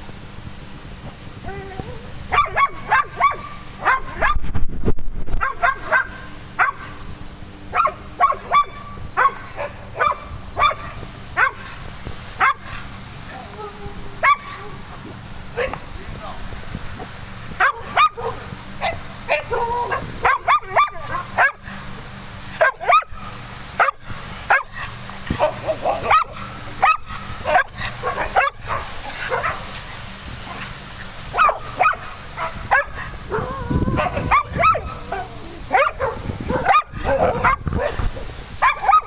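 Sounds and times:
dogs barking: 2.3s - 4.4s, 5.4s - 7.0s, 7.7s - 12.9s, 14.2s - 15.9s, 17.6s - 21.9s, 22.5s - 29.8s, 30.4s - 39.0s.

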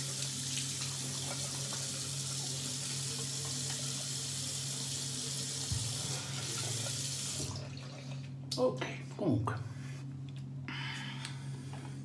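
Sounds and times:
tap water running into sink: 0.0s - 8.3s.

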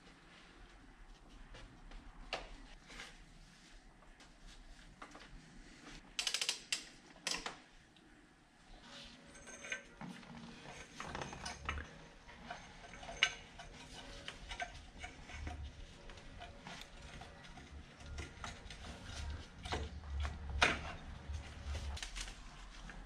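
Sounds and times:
metal tools clinking: 9.2s - 20.0s.

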